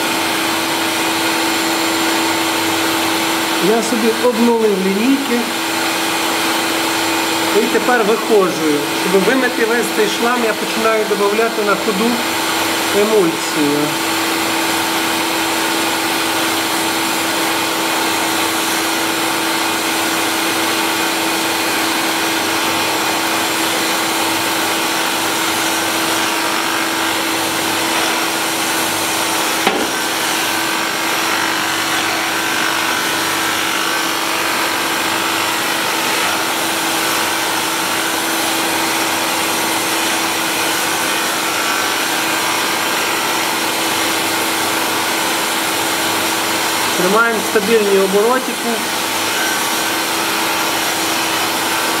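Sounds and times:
motor hum: 12.1s - 43.4s.

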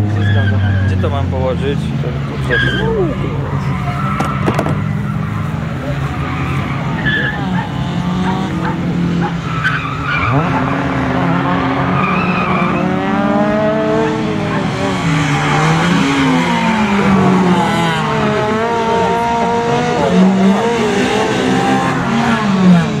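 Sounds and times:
tyre squeal: 0.0s - 1.0s, 2.4s - 10.9s, 11.6s - 13.2s
car engine accelerating: 0.0s - 23.0s.

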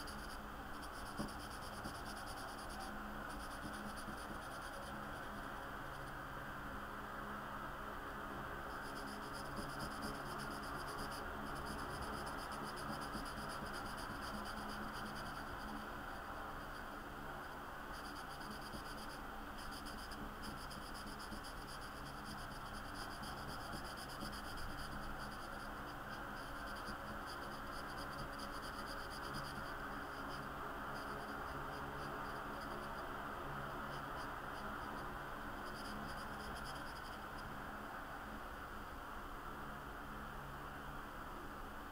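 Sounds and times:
marker scratching on paper: 0.0s - 5.4s, 8.9s - 15.8s, 18.0s - 33.0s.

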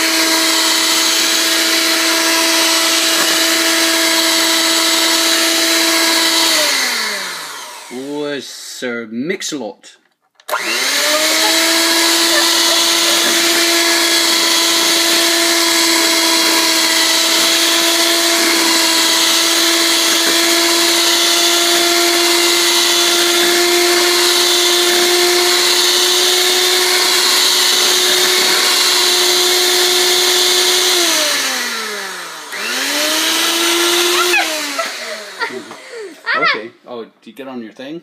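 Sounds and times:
electric hand mixer whining: 0.0s - 8.3s, 10.5s - 36.7s.

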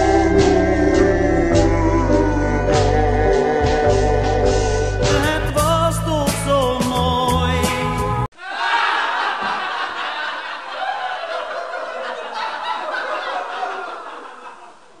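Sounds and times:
crowd laughing: 8.3s - 15.0s.

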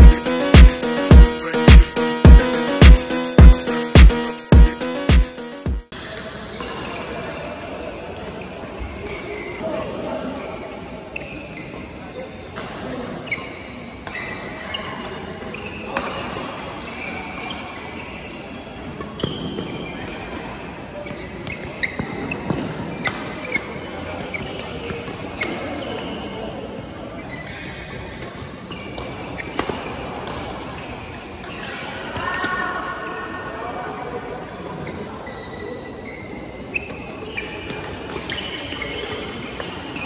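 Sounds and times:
din of games in hall: 0.0s - 6.5s
sports hall din: 0.0s - 40.0s
shoes squeaking on court floor: 8.2s - 12.2s, 13.2s - 33.8s, 34.6s - 40.0s.

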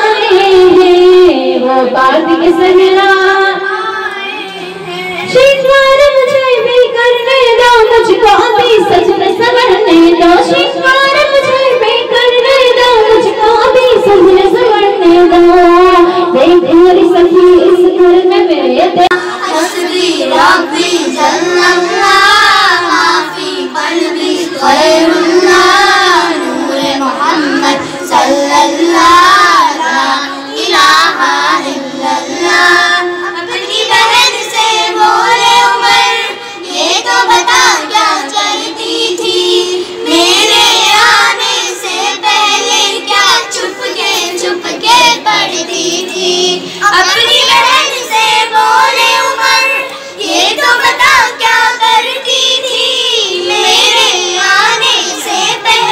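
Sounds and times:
girls chanting devotional song: 0.0s - 55.9s
breaths: 36.4s - 36.7s, 46.6s - 46.8s, 49.9s - 50.2s.

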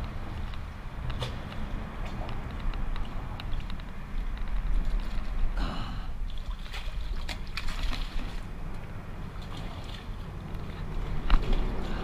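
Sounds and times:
water splashing around kayak: 0.0s - 12.0s
wind rumble on microphone: 0.0s - 12.0s.

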